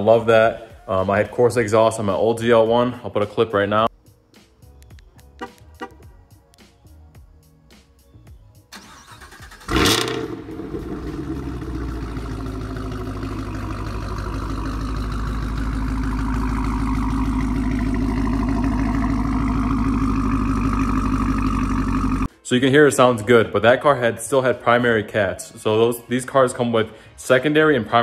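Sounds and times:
car engine starting: 8.7s - 22.3s
car engine idling: 8.8s - 22.3s.

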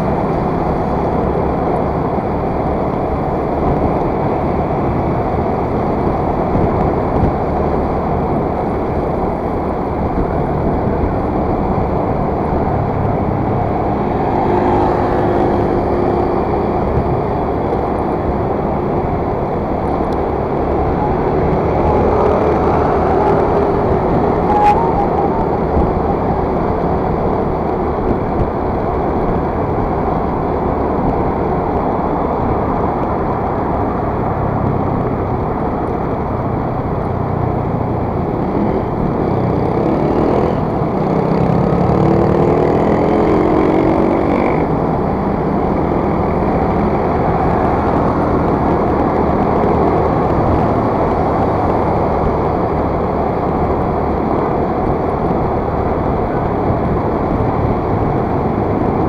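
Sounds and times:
vehicle engine speeding up: 0.0s - 34.3s
loud wind rush: 0.0s - 59.0s.

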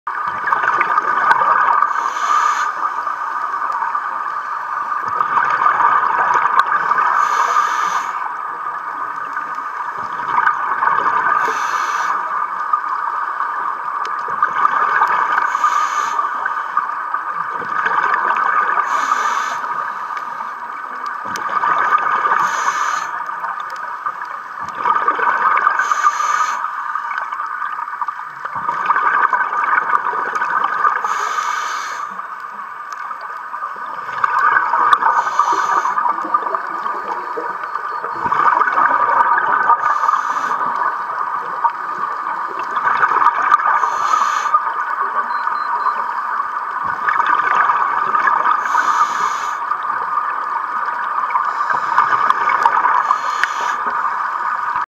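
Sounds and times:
gurgling exhaled bubbles: 0.1s - 15.7s, 16.3s - 26.2s, 27.0s - 31.3s, 33.1s - 54.9s
diver breathing through regulator: 1.8s - 3.2s, 7.0s - 8.3s, 11.2s - 12.3s, 15.3s - 16.7s, 18.8s - 20.5s, 22.3s - 23.3s, 25.7s - 26.8s, 31.0s - 32.2s, 34.9s - 36.4s, 39.7s - 40.8s, 43.6s - 44.7s, 48.5s - 49.7s, 51.4s - 54.0s.

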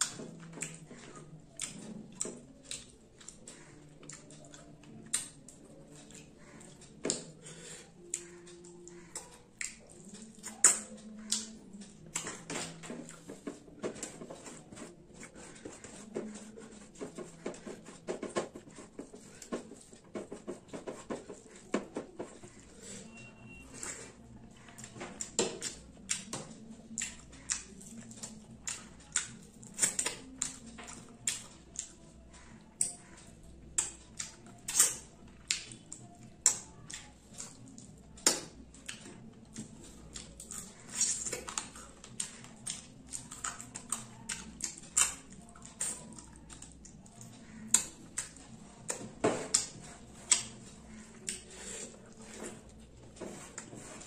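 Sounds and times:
wet chewing and lip smacks: 0.0s - 13.4s, 23.8s - 52.2s.

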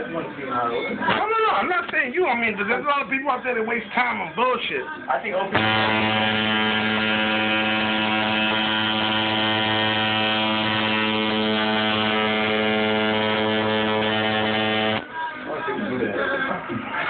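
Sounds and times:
tattoo machine buzzing: 5.6s - 15.1s.

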